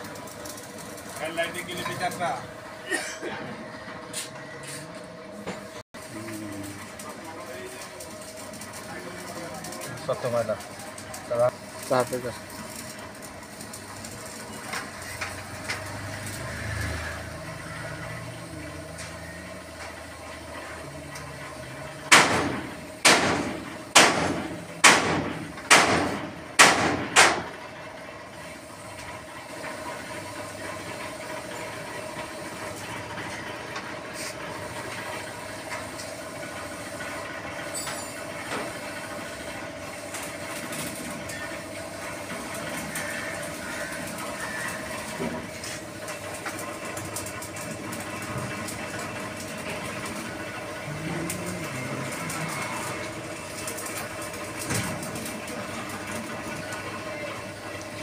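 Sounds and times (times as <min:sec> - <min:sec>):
steady background hum: 0:00.0 - 0:58.0
loud sharp knocks: 0:22.1 - 0:27.5.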